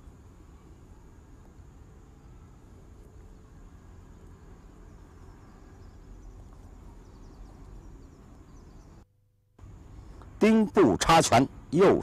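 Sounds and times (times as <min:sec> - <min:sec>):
faint high chirps: 0:00.0 - 0:09.1.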